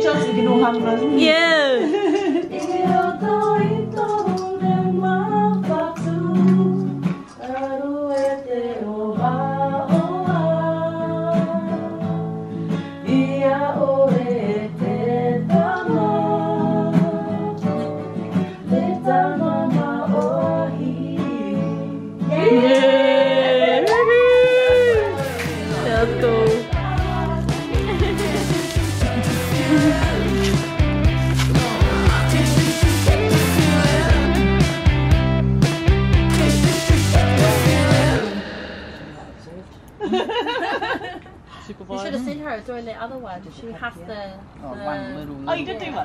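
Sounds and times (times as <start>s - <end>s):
women singing: 0.0s - 12.2s, 13.0s - 34.6s, 36.3s - 39.6s
acoustic guitar strumming: 24.6s - 38.7s.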